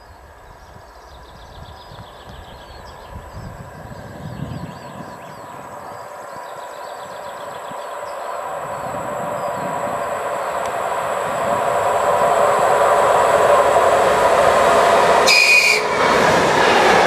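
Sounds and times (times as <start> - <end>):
diesel train engine passing: 0.0 - 17.0
brief shrill tone: 15.3 - 16.0.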